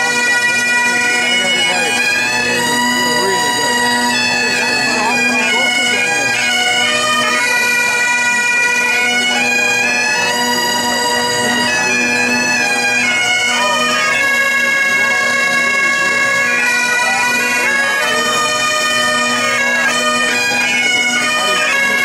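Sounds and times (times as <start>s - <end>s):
bagpipes playing a tune: 0.0s - 22.0s.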